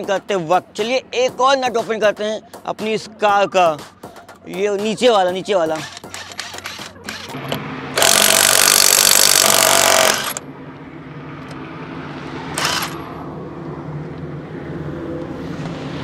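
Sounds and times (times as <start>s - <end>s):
impact wrench hammering: 8.0s - 10.4s.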